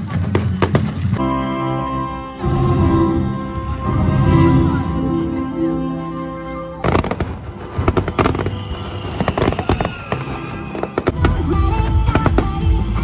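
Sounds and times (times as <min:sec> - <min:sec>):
fireworks bangs and crackling: 0:00.0 - 0:01.2, 0:06.8 - 0:13.0
music: 0:00.0 - 0:13.0
falling firework whistle: 0:06.8 - 0:11.4.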